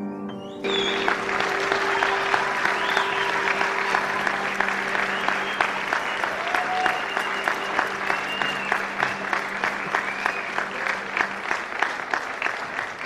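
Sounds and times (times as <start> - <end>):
audience applauding: 0.6 - 13.0.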